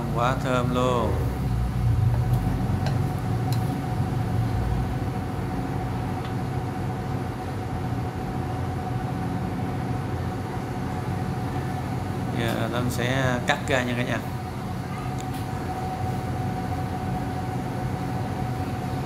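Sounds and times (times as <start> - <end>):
low mechanical hum: 0.0 - 19.0.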